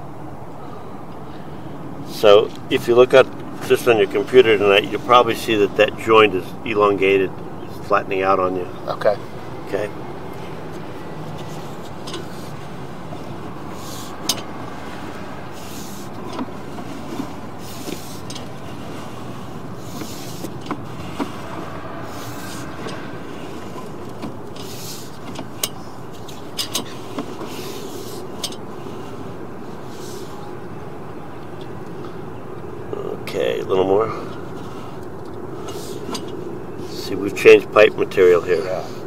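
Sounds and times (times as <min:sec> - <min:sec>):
steady background noise: 0:00.0 - 0:39.0
cable clicking and scraping: 0:10.3 - 0:30.6, 0:34.3 - 0:37.0.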